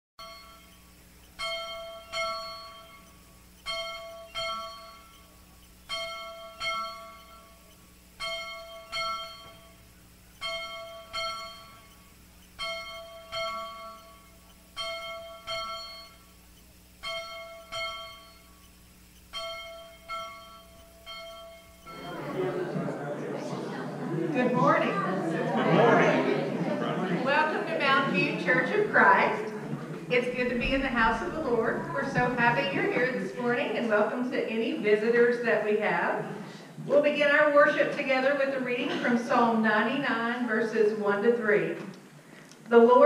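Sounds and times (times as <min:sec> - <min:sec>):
bell ringing: 0:00.2 - 0:22.6.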